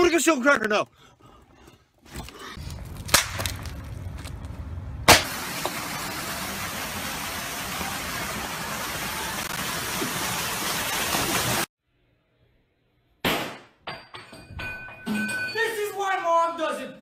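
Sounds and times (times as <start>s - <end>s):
loud sharp crack: 3.0s - 3.8s, 5.0s - 5.5s, 13.2s - 13.8s.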